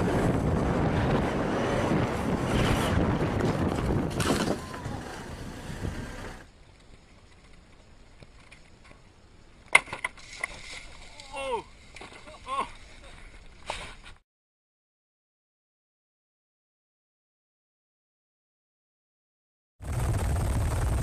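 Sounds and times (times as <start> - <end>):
wind on microphone: 0.0 - 6.4
longboard wheels rumbling on asphalt: 0.0 - 9.2, 19.8 - 21.0.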